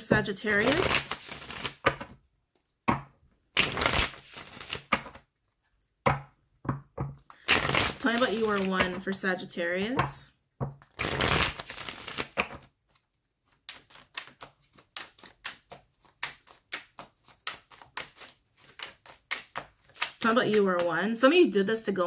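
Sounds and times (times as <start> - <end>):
cards rustling: 0.1 - 2.8, 3.6 - 6.0, 7.2 - 9.1, 10.8 - 21.0
card slaps and flicks: 3.6 - 5.2, 13.7 - 20.2.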